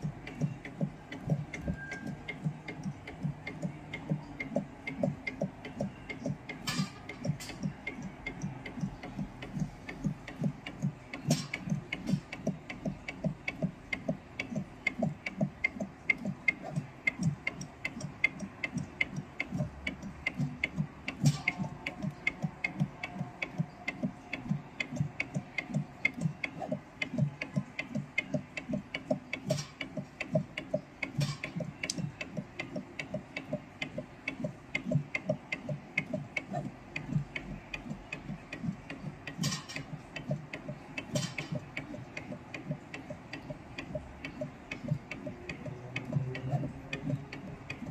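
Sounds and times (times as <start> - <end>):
sharp machine clicks: 0.0 - 47.9
soldering machine ticking: 0.0 - 47.9.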